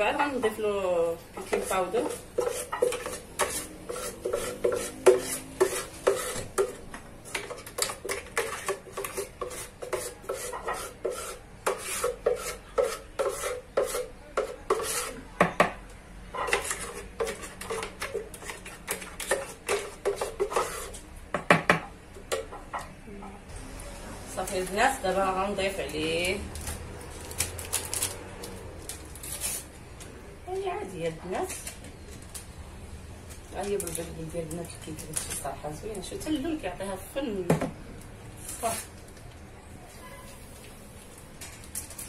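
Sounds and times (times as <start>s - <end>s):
spoon scraping and tapping a jug: 1.4s - 15.7s, 16.4s - 22.9s.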